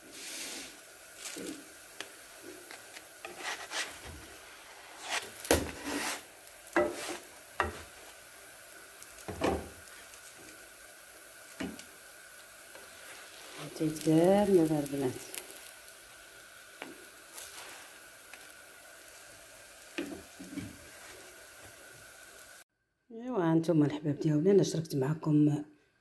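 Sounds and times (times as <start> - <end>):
flatbread sizzling on griddle: 0.0 - 22.6
scrapes and knocks on pan: 6.8 - 7.8.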